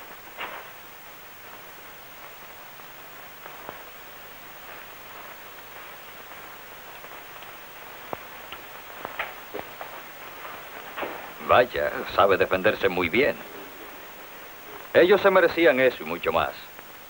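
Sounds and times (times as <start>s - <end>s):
film soundtrack hiss: 0.0s - 17.0s.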